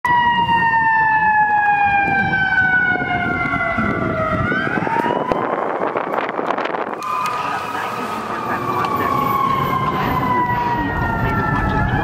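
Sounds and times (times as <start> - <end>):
fire truck siren wailing: 0.0 - 12.0.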